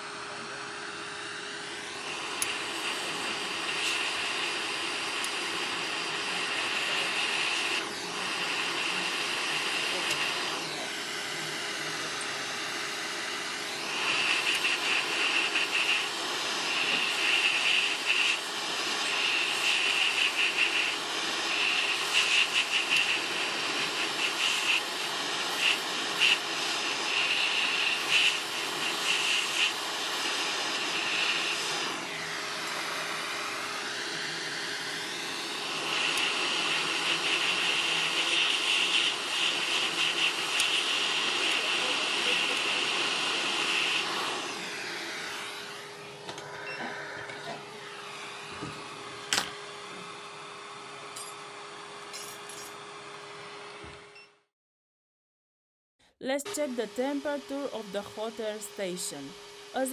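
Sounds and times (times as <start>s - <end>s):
hot air nozzle hissing: 1.6s - 46.2s.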